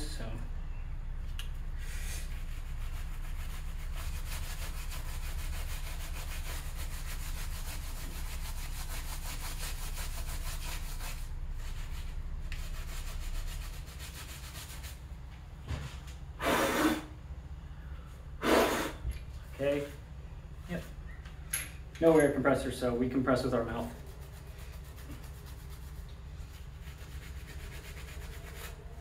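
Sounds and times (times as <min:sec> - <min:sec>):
puff of breath: 0:18.4 - 0:19.0.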